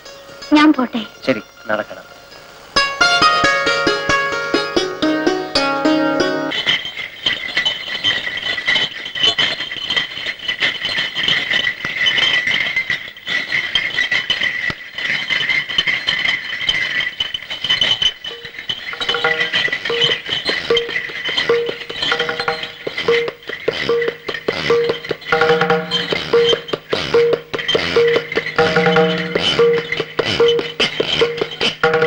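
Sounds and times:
bullock cart jingling rattle: 3.0 - 32.0
repeating musical note: 24.8 - 31.6.

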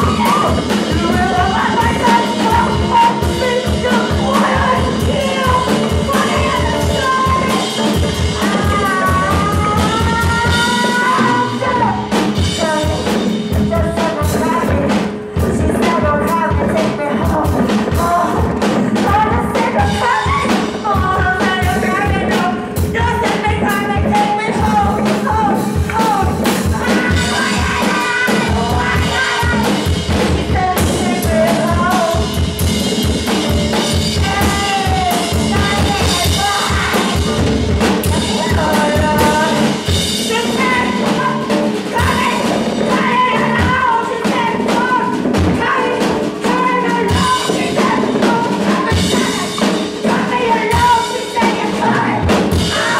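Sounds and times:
electric guitar: 0.0 - 52.9
rapid drumming on drum kit: 0.0 - 52.9
rock band playing: 0.0 - 52.9.

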